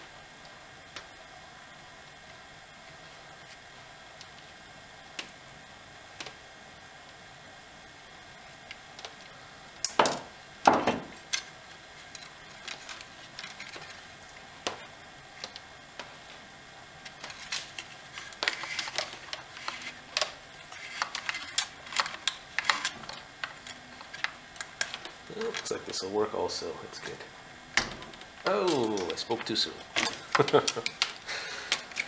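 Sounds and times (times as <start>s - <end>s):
louder knocks: 10.0s - 11.1s
small clicks and rattles of plastic: 11.3s - 14.0s, 14.6s - 16.2s, 17.0s - 25.8s, 27.8s - 32.0s.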